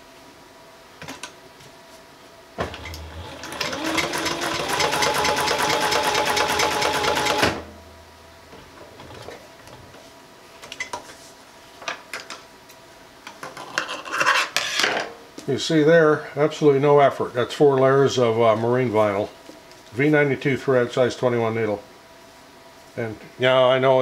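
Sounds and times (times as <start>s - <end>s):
sewing machine motor whirring: 2.7s - 7.7s.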